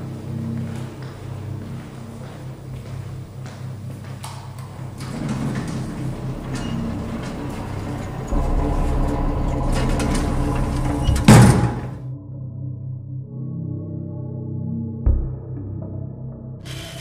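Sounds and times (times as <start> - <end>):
steady hum: 0.0 - 12.1
low rumble: 4.8 - 12.6
loud ringing hit: 8.2 - 12.0.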